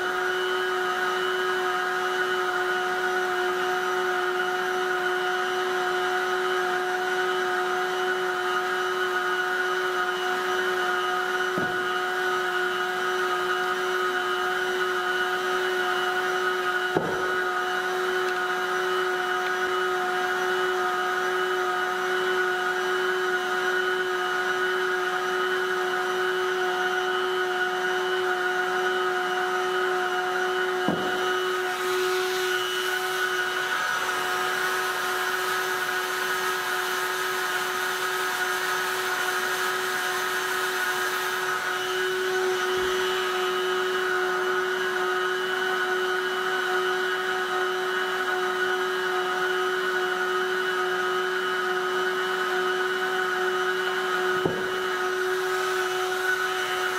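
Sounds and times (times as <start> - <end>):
heat gun fan whirring: 0.0 - 56.9
blown air hissing: 16.2 - 21.4, 30.7 - 37.0, 37.6 - 45.2, 54.0 - 56.9.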